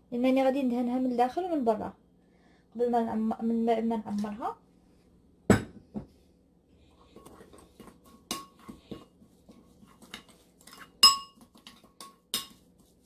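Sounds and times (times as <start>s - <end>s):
metal spoon scraping ceramic bowl: 9.8s - 12.6s.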